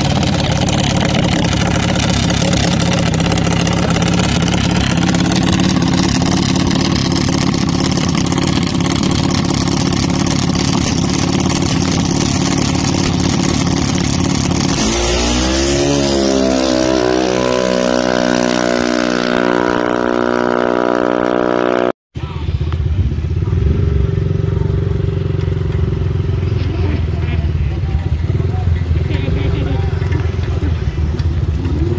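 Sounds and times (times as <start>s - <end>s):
dragster engine running loud: 0.0s - 31.9s.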